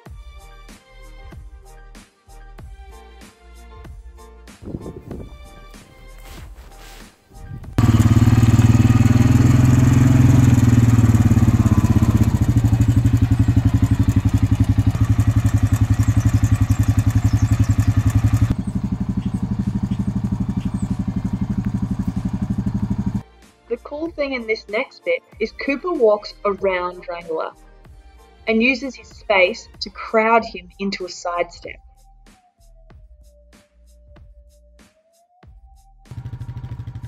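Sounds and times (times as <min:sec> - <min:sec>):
quad bike engine running: 0:07.6 - 0:23.2, 0:36.1 - 0:37.0.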